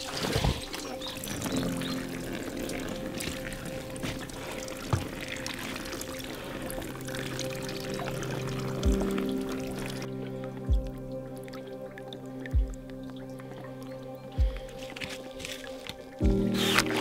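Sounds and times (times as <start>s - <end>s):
background music with held notes: 0.0s - 17.0s
water pouring: 0.0s - 17.0s.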